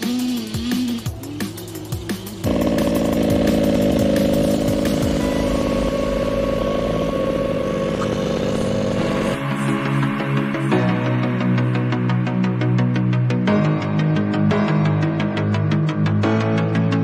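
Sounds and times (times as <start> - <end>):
small two-stroke engine buzzing: 0.0 - 10.4.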